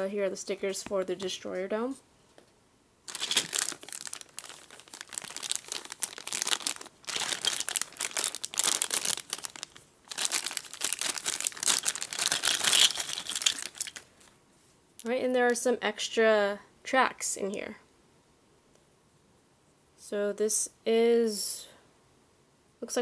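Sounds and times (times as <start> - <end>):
plastic bag crinkling: 3.1 - 14.3.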